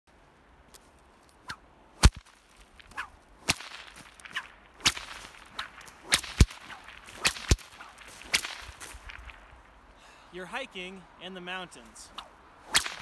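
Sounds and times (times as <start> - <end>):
whip cracking: 1.4 - 9.5, 12.1 - 13.0.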